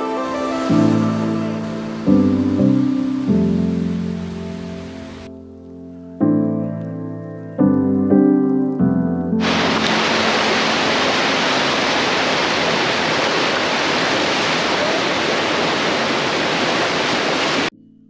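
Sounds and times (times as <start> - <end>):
whitewater rushing into pool: 0.0 - 5.3, 9.4 - 17.7.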